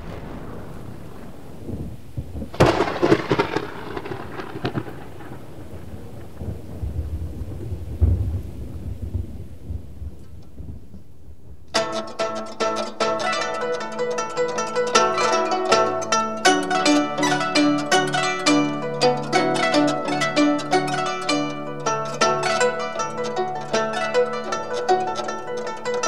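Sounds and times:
rain hissing: 0.0s - 10.4s
sharp thunder cracks: 0.0s - 11.7s
low thunder rumble: 0.0s - 11.8s.

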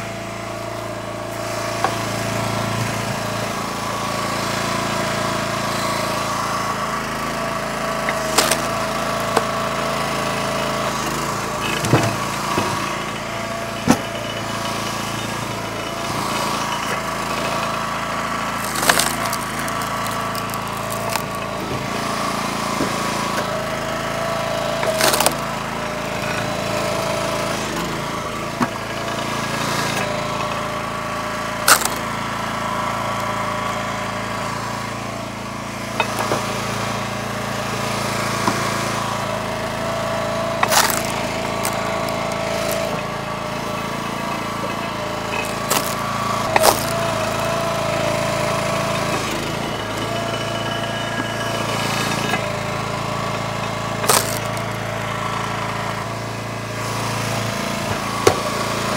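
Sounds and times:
log splitter engine running: 0.0s - 58.9s
firewood cracking and knocking: 18.6s - 21.5s, 25.0s - 25.4s, 40.6s - 43.0s, 45.4s - 47.0s.

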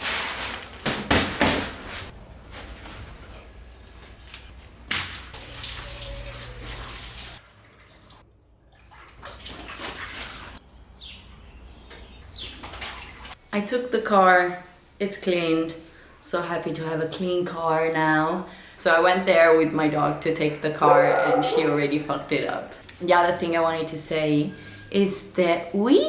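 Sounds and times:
hose water running into pool: 5.3s - 8.2s, 8.8s - 10.6s.

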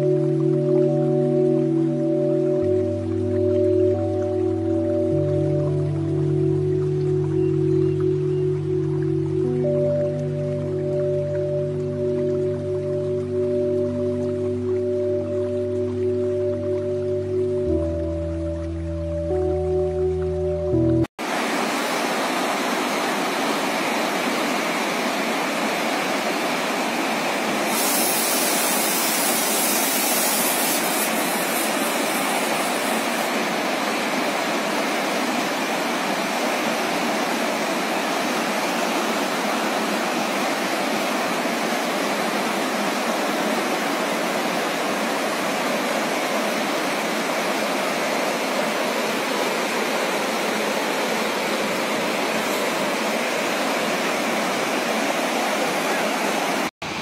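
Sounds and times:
river rushing over rocks: 21.2s - 57.0s.

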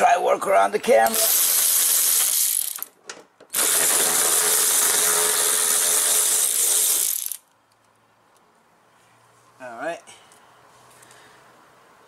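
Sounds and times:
cordless electric ratchet running: 1.1s - 2.9s, 3.5s - 7.4s.

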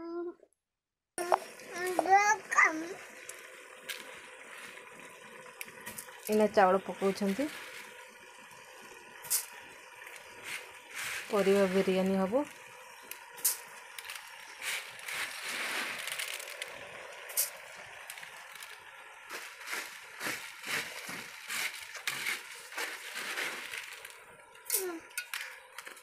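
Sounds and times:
rice pouring into liquid: 1.3s - 26.0s
rice grains scraping on tray: 14.6s - 16.6s.

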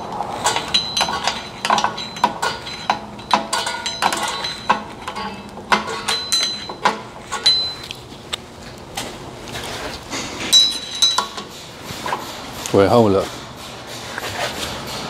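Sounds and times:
metallic clicks and clinks: 0.4s - 8.0s.

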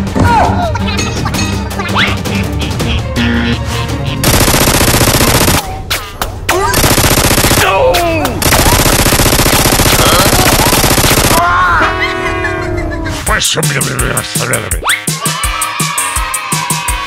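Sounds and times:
toy blaster machine-gun fire: 4.2s - 5.8s, 6.6s - 7.8s, 8.4s - 11.4s.

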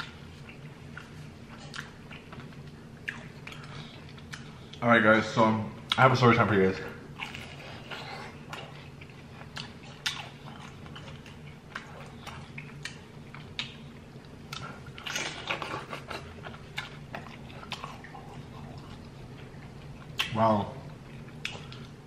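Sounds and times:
chewing and biting food: 0.0s - 4.8s, 7.1s - 22.0s.

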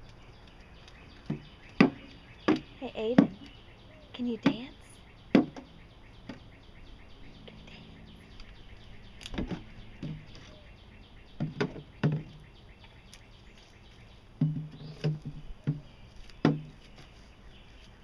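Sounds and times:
birds chirping faintly: 0.0s - 18.0s
plastic jug knocking on boards: 1.2s - 3.4s, 5.3s - 5.7s, 11.4s - 12.4s, 14.4s - 16.8s.

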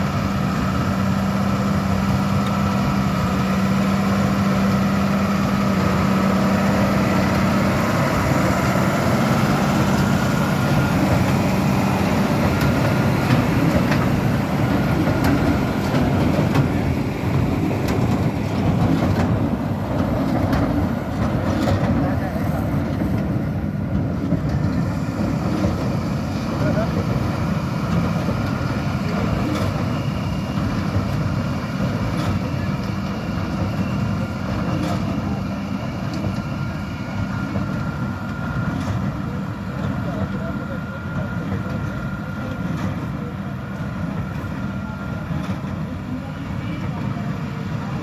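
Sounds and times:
tractor and baler mechanical drone: 0.0s - 48.0s.

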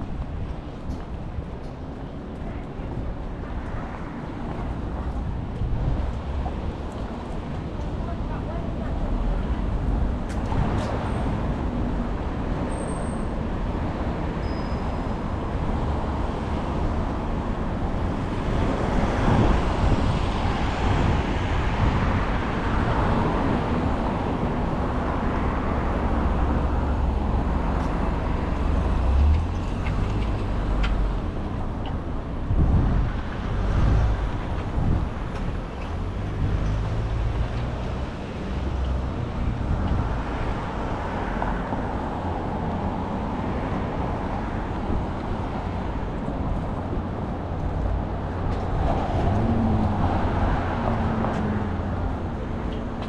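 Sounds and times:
street traffic rumble: 0.0s - 53.0s
vehicles passing: 0.0s - 53.0s.

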